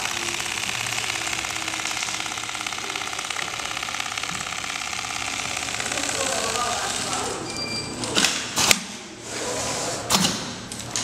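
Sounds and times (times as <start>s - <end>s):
sewing machine needle rhythm: 0.0s - 7.2s
sewing machine hum: 0.0s - 7.4s.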